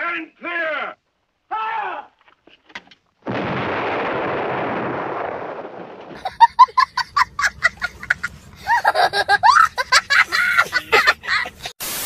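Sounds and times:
artillery gun firing: 3.2 - 6.2
child laughing: 6.2 - 11.7.

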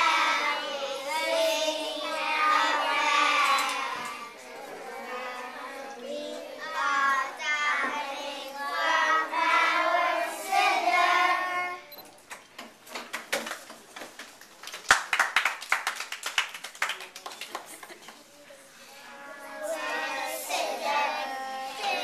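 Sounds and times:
boys singing together: 0.0 - 11.8, 19.2 - 22.0
hand clapping: 12.3 - 18.2.

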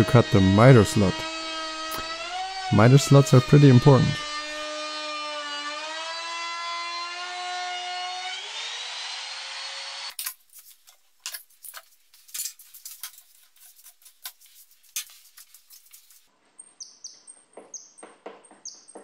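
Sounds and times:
router motor whine: 0.0 - 10.1.

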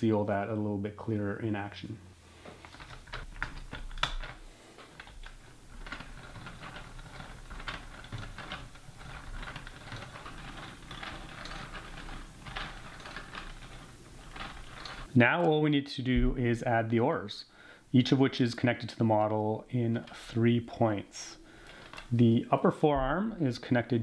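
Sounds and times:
plastic parts clicking and rattling: 2.4 - 15.5, 21.4 - 22.4.

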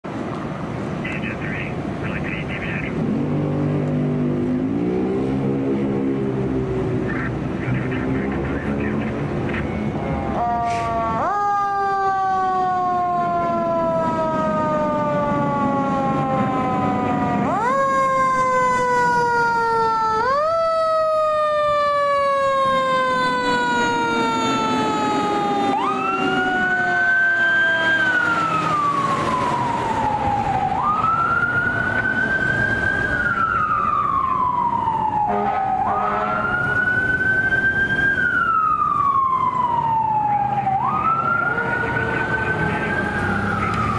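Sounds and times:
electronic siren wail: 9.6 - 43.9.

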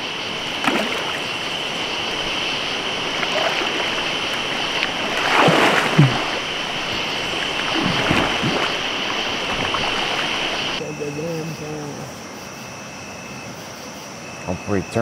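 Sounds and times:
river water rushing: 0.0 - 10.8
person splashing through water: 0.5 - 10.8.

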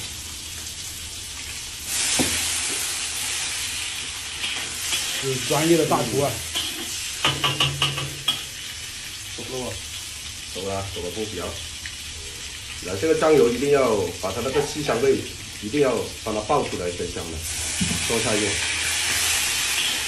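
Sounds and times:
liquid sizzling in hot wok: 0.0 - 20.0
metal ladle scraping wok: 14.4 - 14.8.

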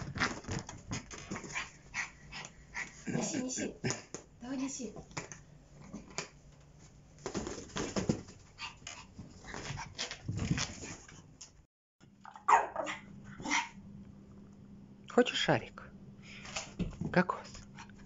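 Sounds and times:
small dog barking: 12.3 - 13.8.

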